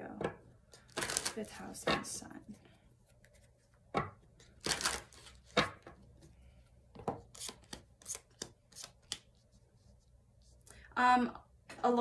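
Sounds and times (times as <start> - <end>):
cards being shuffled: 0.7 - 1.4, 4.4 - 5.8, 7.2 - 9.4.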